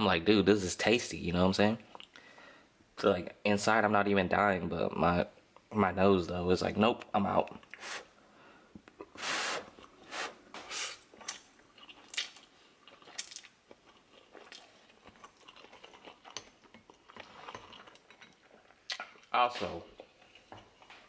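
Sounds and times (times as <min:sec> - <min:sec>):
person chewing and slurping noodles: 0:09.0 - 0:19.3, 0:19.9 - 0:21.0.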